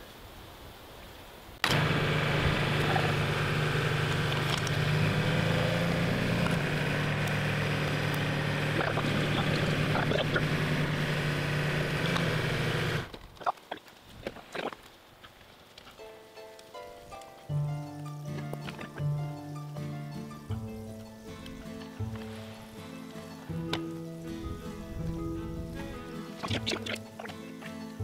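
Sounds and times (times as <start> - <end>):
tractor diesel engine running: 1.6 - 13.1.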